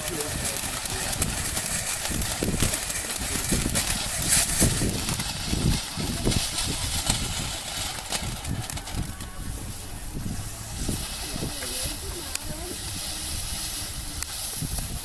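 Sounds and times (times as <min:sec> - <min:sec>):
firework fountains hissing and crackling: 0:00.0 - 0:15.0.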